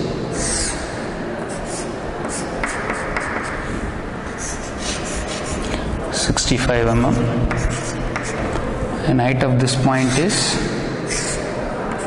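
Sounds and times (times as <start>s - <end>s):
chalk scraping on chalkboard: 1.5s - 3.6s, 4.4s - 5.7s, 7.5s - 8.5s, 11.1s - 11.5s.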